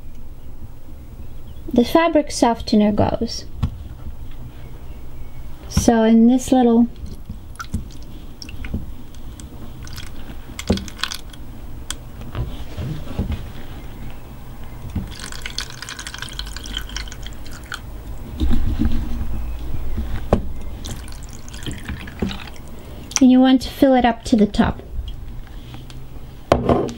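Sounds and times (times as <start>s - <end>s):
liquid pouring into plastic drawer: 20.8s - 22.6s.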